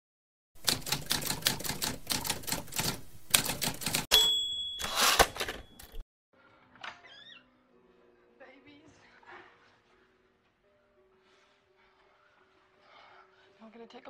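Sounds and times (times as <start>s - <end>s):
typewriter carriage return rasp: 0.6s - 6.0s
typewriter keys clacking: 0.6s - 6.0s
typewriter carriage bell ding: 3.8s - 6.0s.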